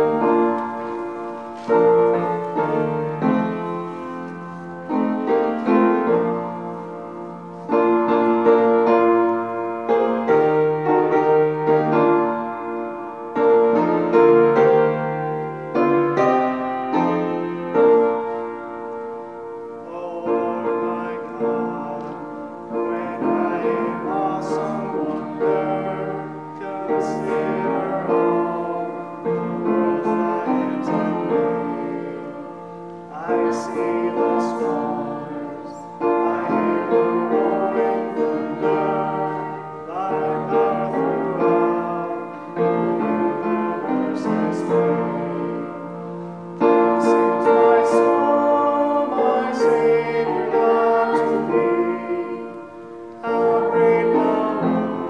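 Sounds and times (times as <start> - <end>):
upright piano playing: 0.0 - 55.0
man singing: 19.8 - 32.5, 33.1 - 45.7, 47.0 - 52.5, 53.2 - 55.0.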